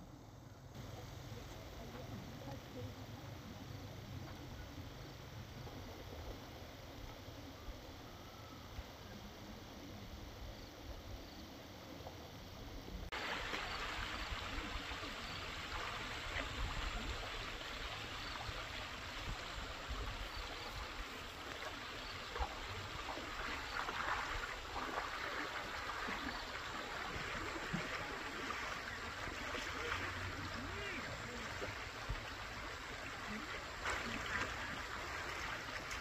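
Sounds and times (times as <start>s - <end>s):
stream water flowing: 11.7s - 36.0s.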